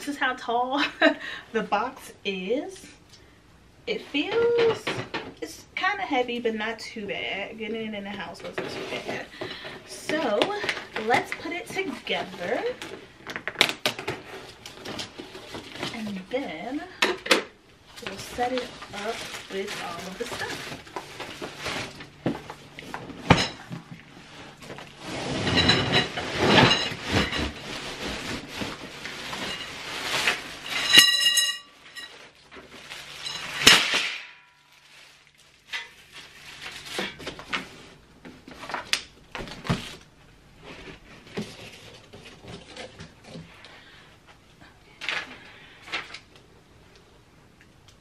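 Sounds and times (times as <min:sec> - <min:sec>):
plastic wrap crinkling: 0:17.9 - 0:23.3, 0:24.0 - 0:31.2, 0:31.8 - 0:40.1
cardboard scraping and rustling: 0:18.0 - 0:30.9
ringing metallic clink: 0:30.9 - 0:31.7.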